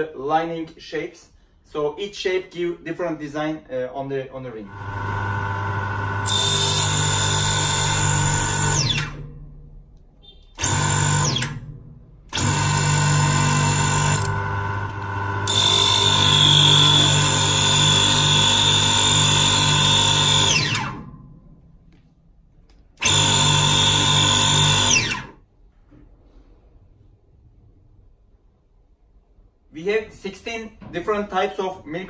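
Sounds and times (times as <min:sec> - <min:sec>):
lathe motor spinning: 0:04.7 - 0:09.2, 0:10.6 - 0:11.6, 0:12.3 - 0:21.1, 0:23.0 - 0:25.3.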